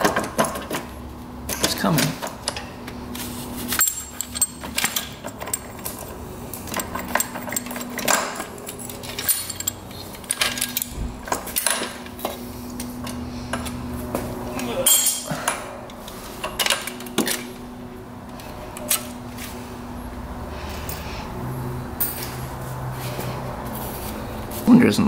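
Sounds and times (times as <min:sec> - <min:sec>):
tools and metal parts clinking: 0:00.0 - 0:02.7, 0:03.6 - 0:13.8, 0:14.6 - 0:17.6, 0:18.3 - 0:19.6, 0:22.0 - 0:22.5.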